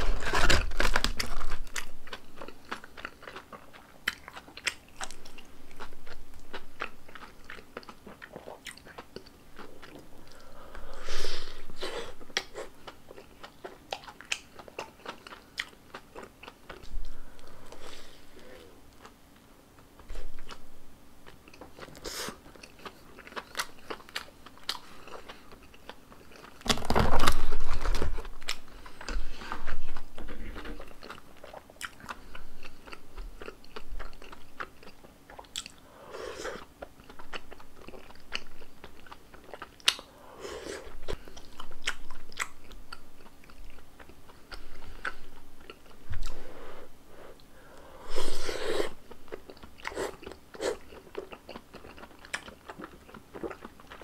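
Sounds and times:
wet chewing: 0:00.0 - 0:10.5, 0:12.2 - 0:17.8, 0:27.6 - 0:40.1, 0:47.4 - 0:54.0
crunching bites and chewing: 0:21.3 - 0:29.2.

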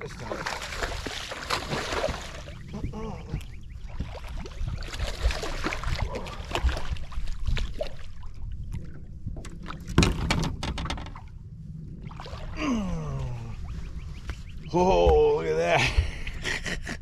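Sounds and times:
low rumble of wind or water: 0:00.0 - 0:17.0
fish splashing at the surface: 0:00.3 - 0:02.5.

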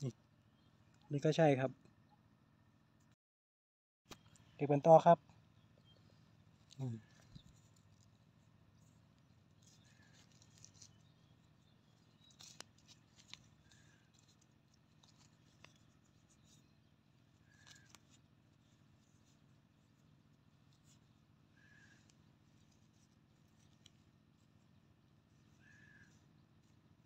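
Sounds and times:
fingers scraping dry soil: 0:05.9 - 0:27.0.

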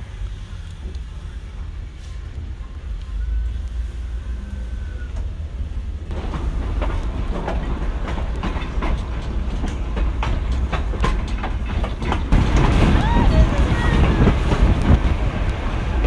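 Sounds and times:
low rumble: 0:00.0 - 0:16.0
train wheels clicking over rail joints: 0:05.0 - 0:16.0.

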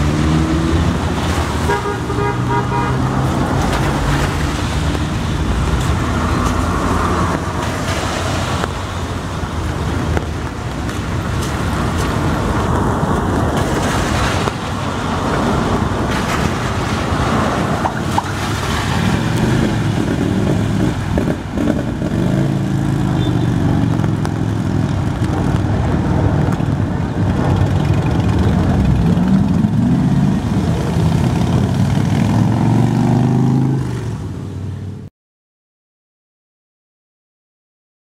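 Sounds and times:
tyres on wet road: 0:00.0 - 0:35.1
motorcycle engine: 0:19.6 - 0:33.8.

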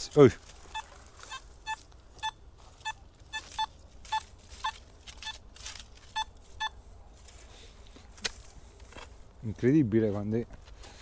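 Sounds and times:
metal detector beeps: 0:00.7 - 0:05.4, 0:06.0 - 0:06.8.

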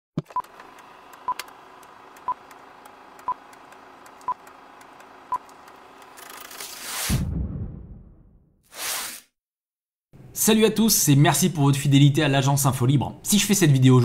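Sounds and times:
whoosh: 0:06.8 - 0:09.2.

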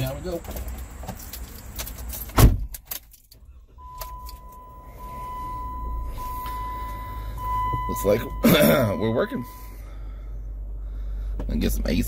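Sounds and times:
keys jangling: 0:01.2 - 0:03.4
low vehicle rumble: 0:03.2 - 0:12.0.

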